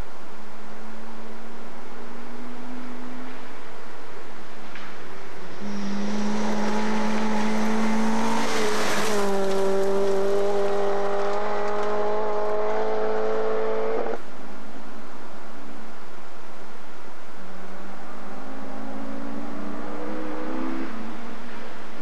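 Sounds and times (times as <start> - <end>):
tape hiss: 0.0 - 8.0, 9.4 - 20.2
rally car engine at high revs: 5.3 - 14.2, 17.8 - 21.6
tyres on gravel: 6.1 - 12.0.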